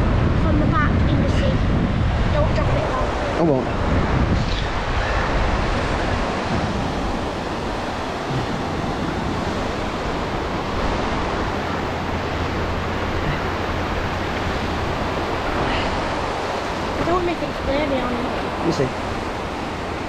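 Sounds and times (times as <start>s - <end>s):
small waves breaking on shore: 0.0s - 20.0s.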